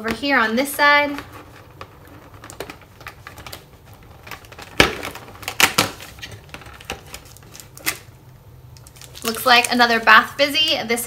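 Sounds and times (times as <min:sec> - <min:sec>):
cardboard and packaging clicks: 0:01.1 - 0:08.1, 0:08.8 - 0:09.8
cardboard cracking: 0:01.2 - 0:08.1, 0:08.8 - 0:09.9.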